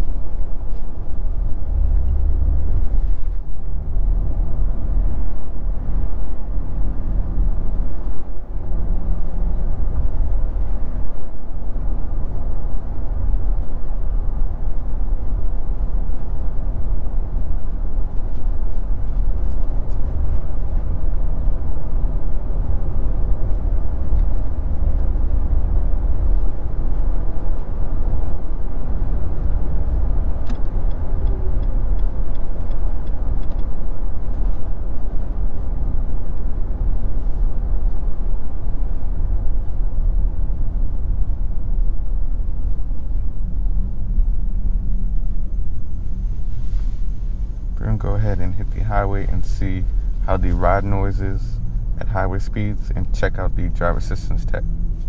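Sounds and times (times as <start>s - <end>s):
engine and road noise in cab: 0.0s - 55.0s.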